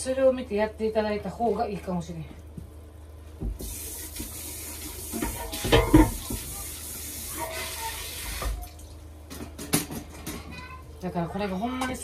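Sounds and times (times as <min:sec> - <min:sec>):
tap running into sink: 0:05.0 - 0:06.6.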